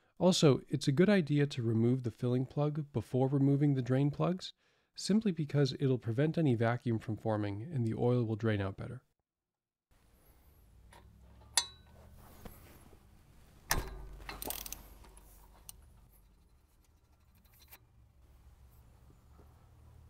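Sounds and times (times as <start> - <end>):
light ratchet clicks: 13.7 - 17.8
ratchet snapping: 13.7 - 17.8
ratchet rasping: 14.3 - 17.8.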